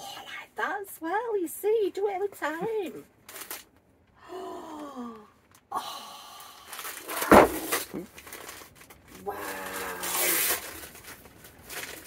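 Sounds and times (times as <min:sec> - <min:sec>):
wrapping paper crinkling and tearing: 0:03.2 - 0:03.8, 0:06.6 - 0:12.0
person sighing ooh: 0:04.2 - 0:05.9, 0:09.2 - 0:10.3.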